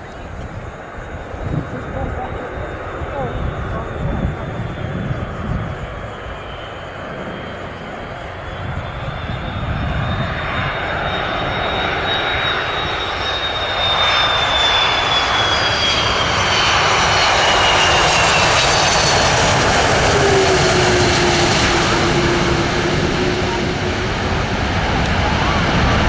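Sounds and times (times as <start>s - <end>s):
airliner engines passing: 0.0s - 26.0s
high falling whine: 1.2s - 16.2s.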